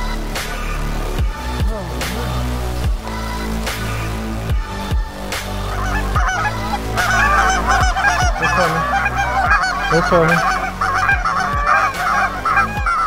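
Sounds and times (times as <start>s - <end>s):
geese honking: 5.5s - 13.0s.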